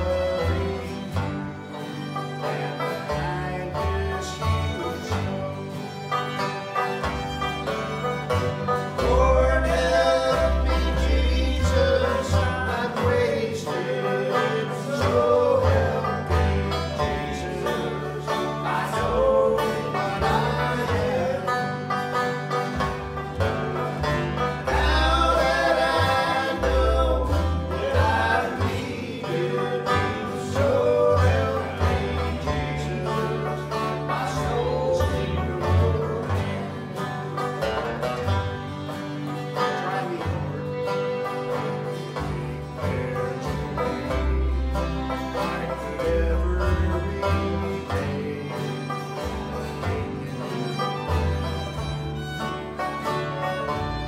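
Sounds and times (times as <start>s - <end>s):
acoustic string band playing: 0.0s - 54.0s
pulsing bass line: 14.9s - 38.9s.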